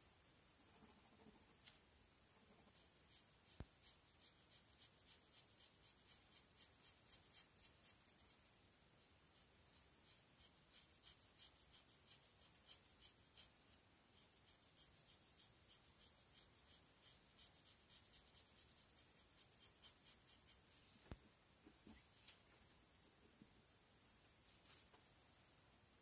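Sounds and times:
marker scratching on paper: 0:00.8 - 0:20.8.

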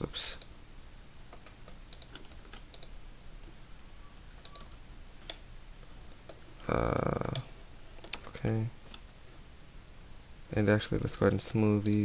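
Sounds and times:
keyboard and mouse clicks: 0:01.3 - 0:03.0, 0:04.4 - 0:05.4, 0:07.2 - 0:09.0, 0:11.8 - 0:12.0.

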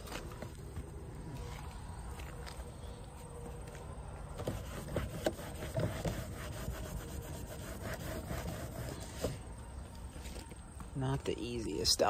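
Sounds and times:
rag scrubbing vinyl siding: 0:04.3 - 0:09.6.

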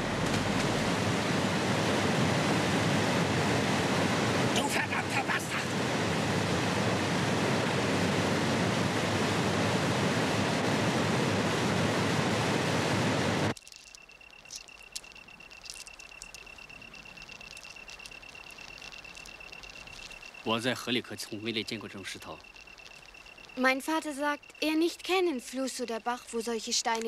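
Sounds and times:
river water rushing: 0:00.0 - 0:13.5
steady high-pitched tone: 0:13.2 - 0:27.0
faint clicks: 0:13.5 - 0:24.8.

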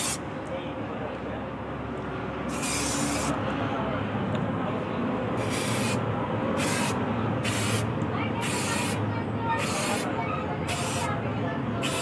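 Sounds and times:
spray can hissing: 0:00.0 - 0:00.2, 0:02.5 - 0:03.4, 0:05.4 - 0:06.0, 0:06.6 - 0:09.0, 0:09.6 - 0:10.1, 0:10.7 - 0:11.1, 0:11.8 - 0:12.0.

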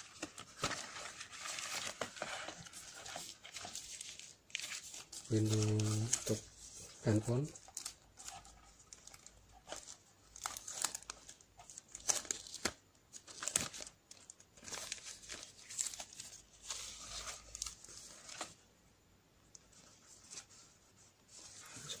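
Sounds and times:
plastic packaging crinkling: 0:00.0 - 0:18.6.

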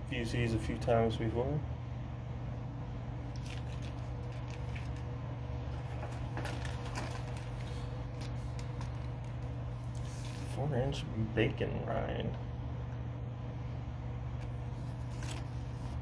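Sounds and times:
steady low hum: 0:00.0 - 0:16.0
plastic bag crinkling: 0:03.3 - 0:05.1, 0:05.7 - 0:10.5.

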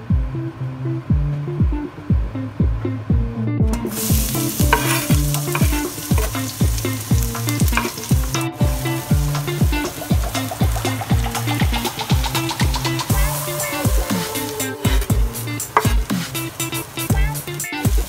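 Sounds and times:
background music with steady beat: 0:00.0 - 0:18.0
garlic sizzling in hot oil: 0:03.7 - 0:18.0
wooden spatula stirring: 0:03.9 - 0:08.4.

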